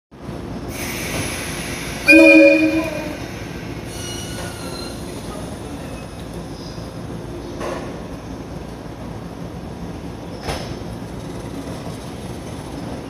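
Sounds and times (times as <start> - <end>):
faint steady train tones: 0.2 - 13.0
train hiss: 0.6 - 5.9
train horn blast: 2.0 - 3.2.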